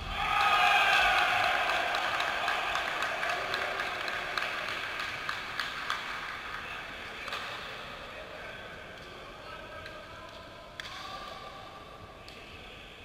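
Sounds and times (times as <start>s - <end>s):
players shouting in gymnasium: 0.0s - 4.4s.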